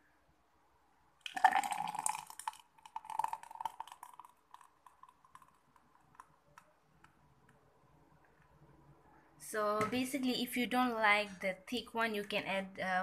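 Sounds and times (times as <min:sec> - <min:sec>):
thick smoothie pouring into a glass: 0:01.2 - 0:06.8.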